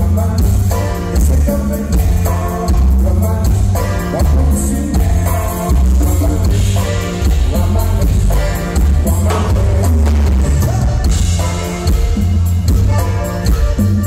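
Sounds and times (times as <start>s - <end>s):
button accordion: 0.0s - 14.0s
live band playing loudly: 0.0s - 14.0s
strong steady bass line: 0.0s - 14.0s.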